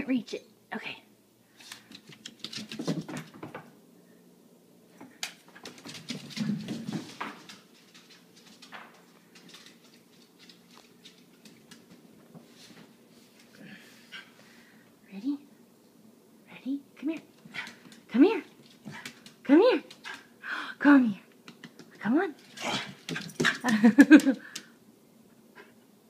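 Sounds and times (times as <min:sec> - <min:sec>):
dog claws clicking on wooden floor: 0:01.6 - 0:03.7, 0:05.1 - 0:12.0, 0:21.4 - 0:24.7.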